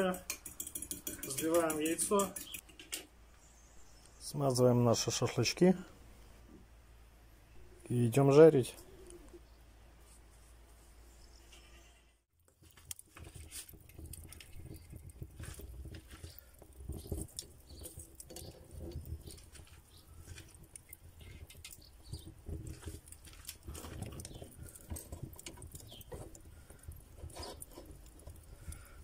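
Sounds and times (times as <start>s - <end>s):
metal skewers clicking on brick: 0.0s - 3.0s.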